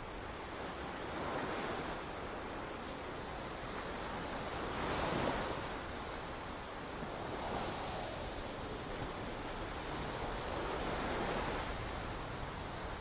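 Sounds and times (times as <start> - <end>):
ocean waves washing in: 3.0 - 13.0.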